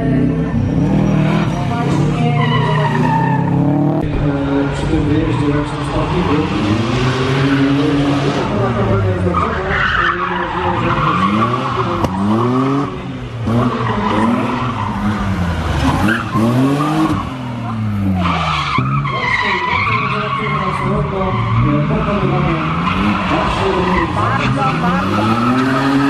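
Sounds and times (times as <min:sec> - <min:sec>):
car engine revving: 0:00.0 - 0:26.0
tyre squeal: 0:00.7 - 0:03.6.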